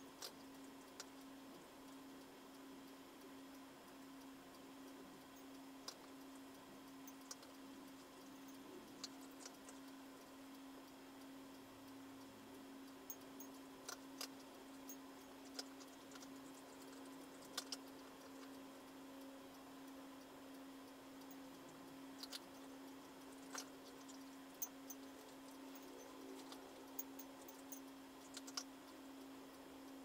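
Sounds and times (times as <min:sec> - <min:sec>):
faint steady hum: 0:00.0 - 0:30.0
light clicks and ticks: 0:00.0 - 0:30.0.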